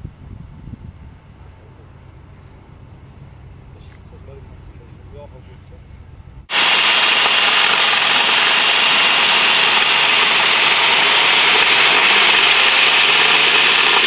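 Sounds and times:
propeller plane engine full power: 3.4 - 14.0
high whine rising in pitch: 6.4 - 14.0.

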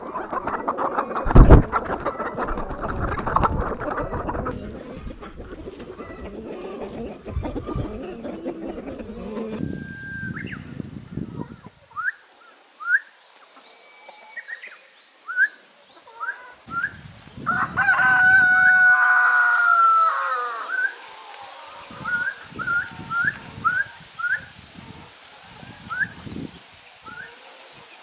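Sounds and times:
rooster crowing: 17.4 - 21.9.

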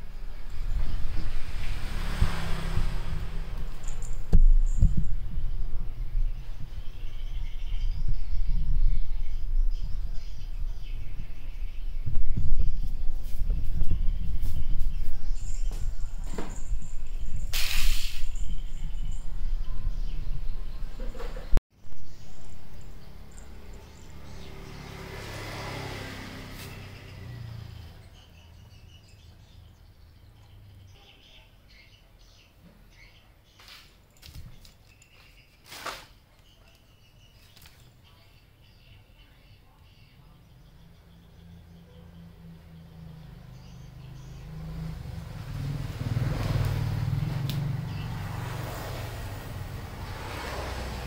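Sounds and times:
vehicle engine passing: 0.0 - 29.9, 40.4 - 51.0
low engine-like hum: 22.2 - 28.7.

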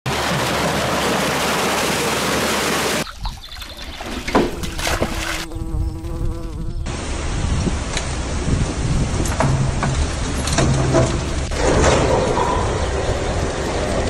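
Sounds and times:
fish splashing into water: 0.1 - 5.5.

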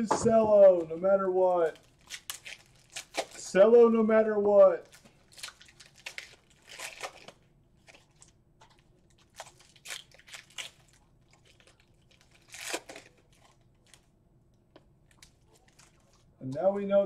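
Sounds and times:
wrappers crinkling and tearing: 1.6 - 3.6, 4.8 - 14.1, 15.1 - 16.3.

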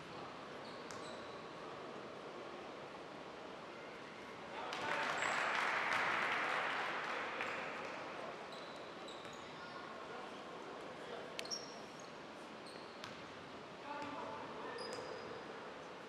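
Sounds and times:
sneaker squeaks: 0.6 - 1.6, 8.5 - 9.8, 11.4 - 13.3, 13.9 - 15.6.

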